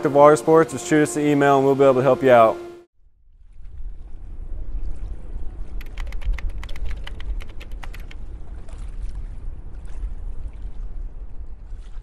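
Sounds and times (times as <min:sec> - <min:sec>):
steady low rumble: 0:03.0 - 0:12.0
water lapping: 0:03.5 - 0:12.0
rapid sharp clicks: 0:05.8 - 0:08.2.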